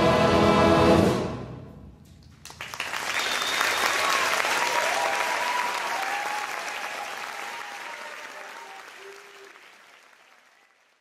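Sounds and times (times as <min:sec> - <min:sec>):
audience applause: 0:02.4 - 0:11.0.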